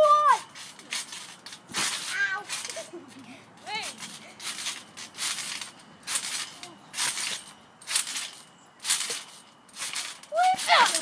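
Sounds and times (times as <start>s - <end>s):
trampoline springs bouncing: 0.0s - 11.0s.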